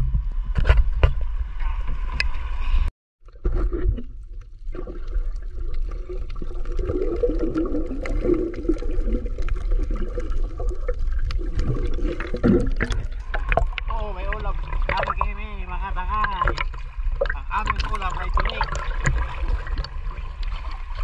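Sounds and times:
muffled underwater rumble: 0.0s - 21.0s
water gurgling: 3.2s - 21.0s
small underwater clicks: 4.4s - 13.9s.

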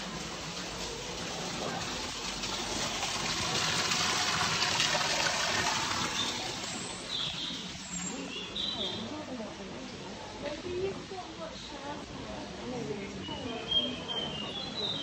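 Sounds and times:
waterfall splashing into pond: 0.0s - 8.5s.

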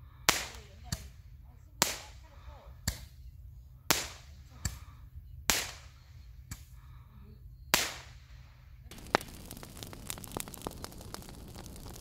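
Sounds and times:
fireworks bangs with echo: 8.9s - 12.0s.

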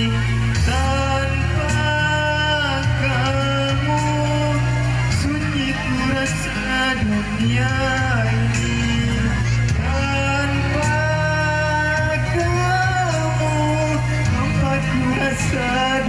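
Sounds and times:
backing music: 0.0s - 16.0s
man singing into microphone: 0.0s - 16.0s.

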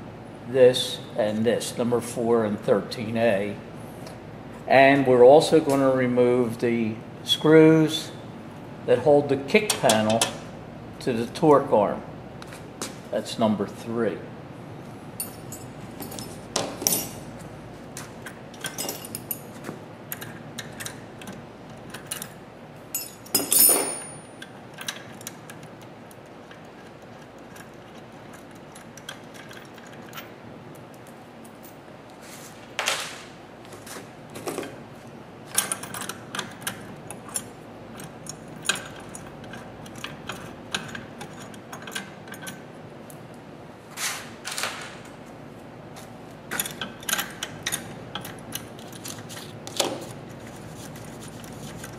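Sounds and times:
metal tools clinking on steel: 15.2s - 17.2s, 18.6s - 19.6s, 21.9s - 25.3s.

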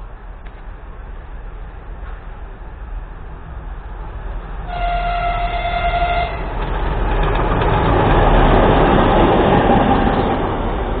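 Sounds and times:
train wheels on rails: 0.0s - 11.0s
locomotive horn: 4.6s - 6.5s.

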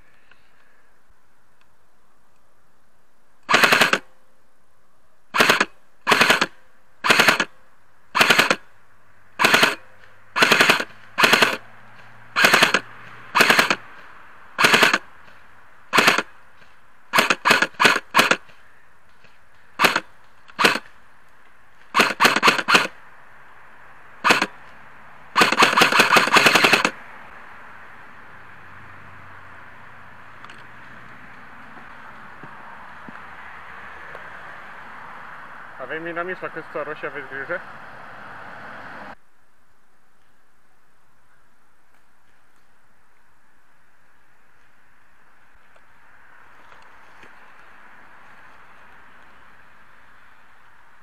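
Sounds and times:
airsoft rifle firing bursts: 3.5s - 4.1s, 5.3s - 7.5s, 8.1s - 8.7s, 9.4s - 18.6s, 19.2s - 20.9s, 21.8s - 23.0s, 24.2s - 24.6s, 25.3s - 27.0s.

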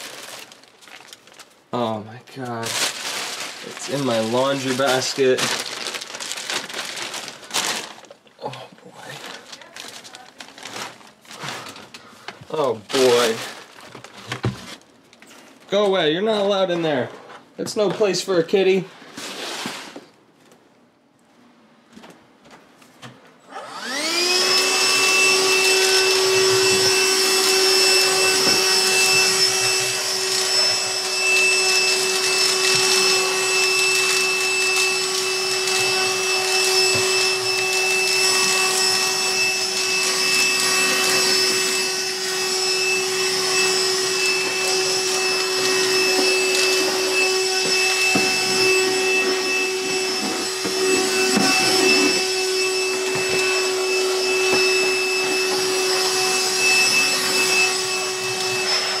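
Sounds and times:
handheld vacuum cleaner whining: 2.8s - 8.1s, 9.0s - 14.8s, 23.5s - 59.0s.

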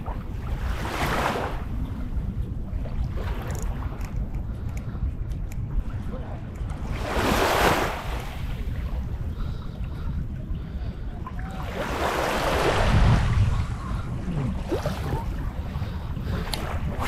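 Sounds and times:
sea water washing: 0.0s - 17.0s
wind buffeting microphone: 0.0s - 17.0s
click: 3.5s - 5.6s.

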